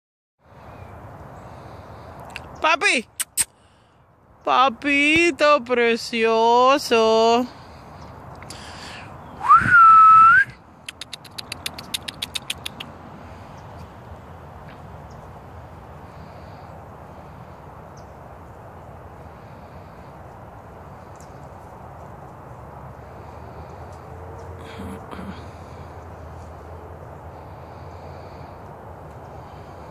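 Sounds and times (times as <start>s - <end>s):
person whistling: 9.4s - 10.5s.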